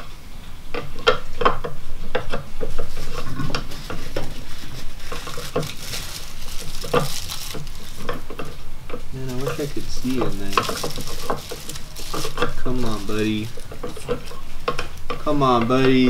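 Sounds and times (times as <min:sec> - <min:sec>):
packaging rustling and scraping: 0:02.4 - 0:15.3.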